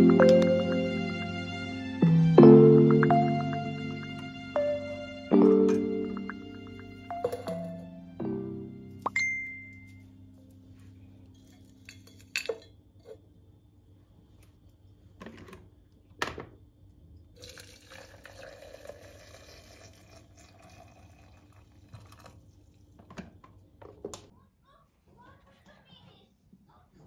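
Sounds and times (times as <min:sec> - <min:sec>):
glass mug clinking on stone: 0:07.1 - 0:07.7, 0:11.8 - 0:12.7
water pouring into glass mug: 0:17.4 - 0:22.6.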